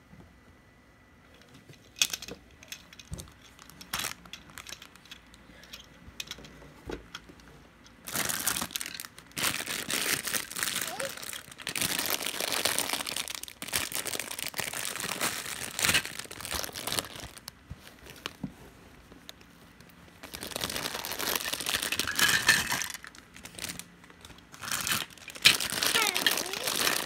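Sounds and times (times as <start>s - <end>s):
plastic bag crinkling: 3.2s - 5.0s, 8.0s - 18.4s, 20.2s - 27.0s.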